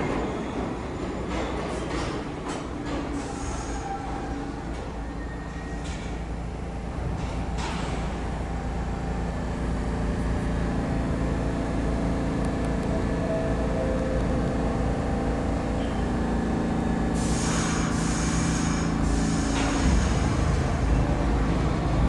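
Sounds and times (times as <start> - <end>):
subway train rumble and hum: 0.0 - 22.0
hiss: 17.2 - 20.7.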